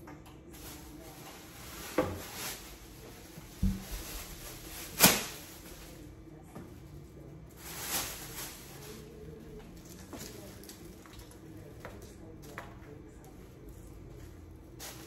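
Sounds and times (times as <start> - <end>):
plastic bag shaken open: 0.6 - 6.0, 7.6 - 9.1
low thud: 3.6 - 4.2.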